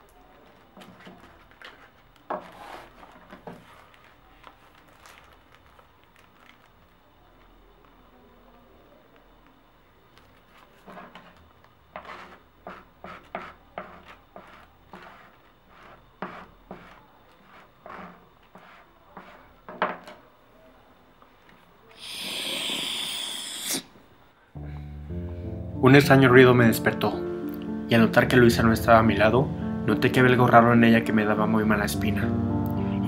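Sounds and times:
plastic card scraping on wood: 0.4s - 5.8s, 10.3s - 19.6s
loud sniff: 22.0s - 24.0s.

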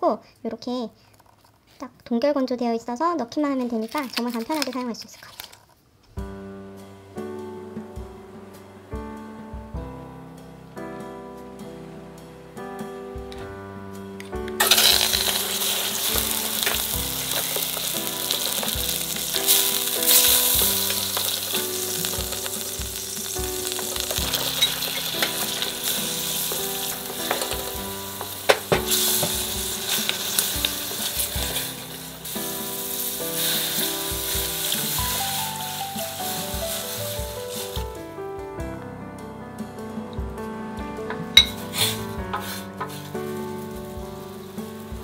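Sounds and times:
oysters sizzling in hot oil: 14.4s - 38.0s, 41.4s - 45.0s
water poured into pot: 14.6s - 37.7s
spatula knocking against pot: 27.2s - 29.4s.

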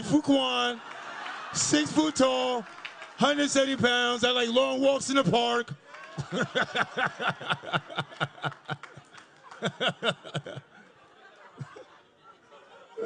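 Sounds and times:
audience laughter: 6.2s - 13.0s.

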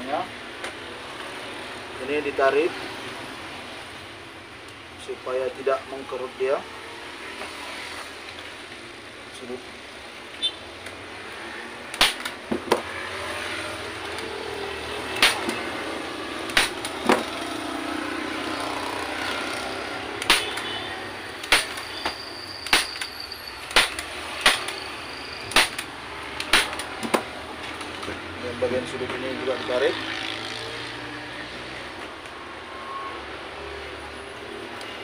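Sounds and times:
hand staple gun snapping: 11.9s - 12.4s, 25.5s - 27.2s.

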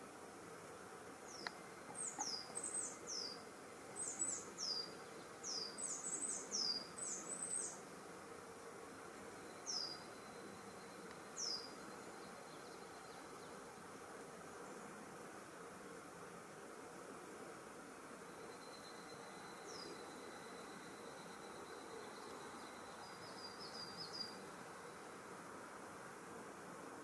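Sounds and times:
faint outdoor hiss: 0.0s - 27.0s
small bird calling: 1.3s - 3.4s, 4.0s - 7.8s.

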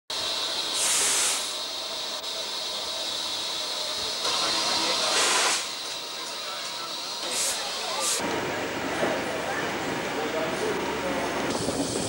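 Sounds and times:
steam blast: 0.1s - 5.9s, 7.2s - 8.2s
steam locomotive hissing: 0.1s - 12.0s.

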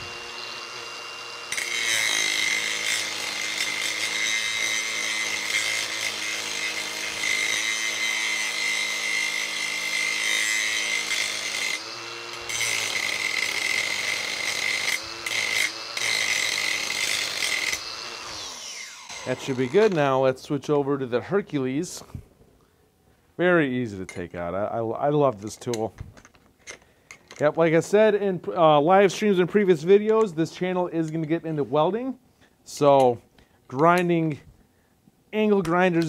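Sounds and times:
angle grinder grinding steel: 0.0s - 20.2s.

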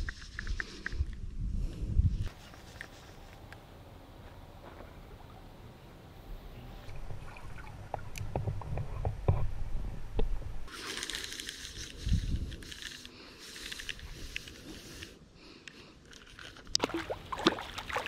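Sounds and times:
muffled water sloshing and gurgling: 6.9s - 9.2s
crackling rustle: 10.7s - 16.8s.

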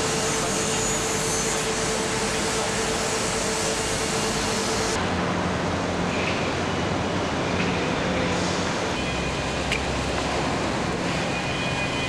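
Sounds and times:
mid-pitched whine: 0.0s - 5.9s
rushing industrial noise: 0.0s - 12.0s.

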